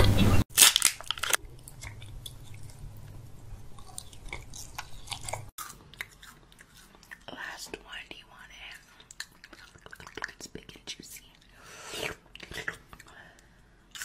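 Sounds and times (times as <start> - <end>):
mouth chewing and biting: 3.7 - 7.3.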